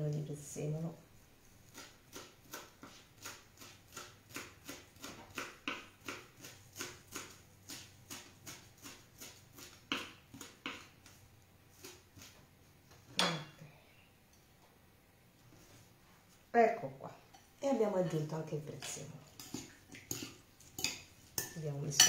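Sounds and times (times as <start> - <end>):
knife chopping on wooden board: 1.7 - 10.9.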